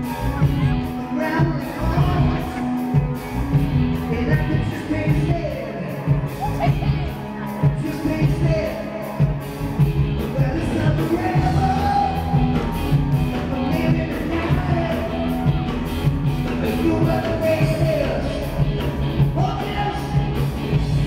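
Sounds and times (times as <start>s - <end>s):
dance song with singing: 10.2s - 15.6s.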